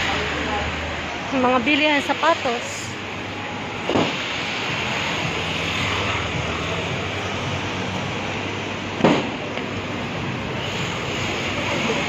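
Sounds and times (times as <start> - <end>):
traffic: 0.0 - 12.0
sharp thump: 9.0 - 9.4.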